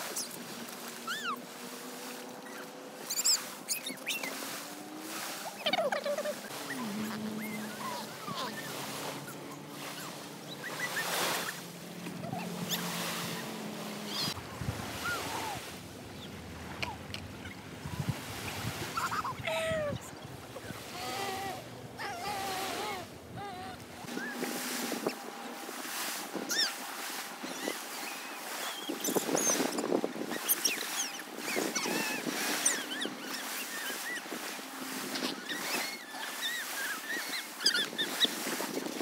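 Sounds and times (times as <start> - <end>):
waves lapping on pebble beach: 0.0 - 23.1, 23.8 - 39.0
wind rumble on microphone: 12.1 - 33.2, 37.2 - 39.0.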